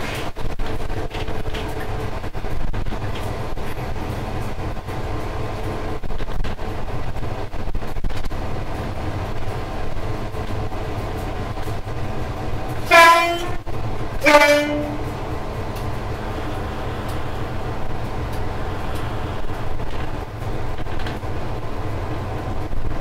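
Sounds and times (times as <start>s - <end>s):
train rumbling on rails: 0.0s - 23.0s
locomotive two-tone horn: 12.8s - 15.2s.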